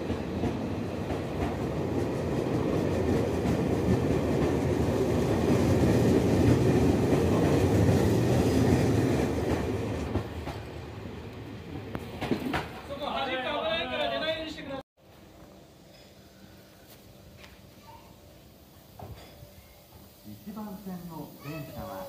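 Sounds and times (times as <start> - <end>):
train wheels clacking on rail joints: 0.0 - 10.7, 11.8 - 13.0
electric train rolling past: 0.0 - 22.0.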